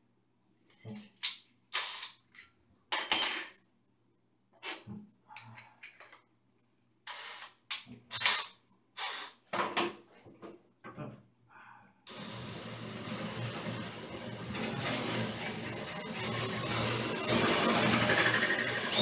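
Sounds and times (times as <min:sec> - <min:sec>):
metal tools clinking: 0:02.3 - 0:03.6.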